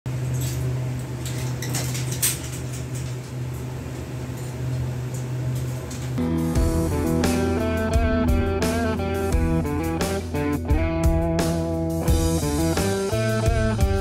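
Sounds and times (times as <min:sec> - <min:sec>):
room equipment hum: 0:00.1 - 0:14.0
guitar music: 0:06.2 - 0:14.0.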